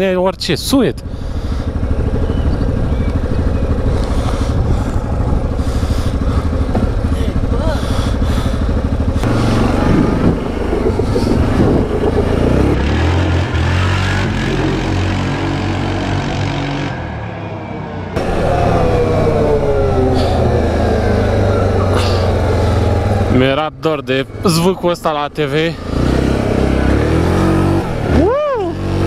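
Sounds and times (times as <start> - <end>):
atv engine revving: 1.0 - 29.0.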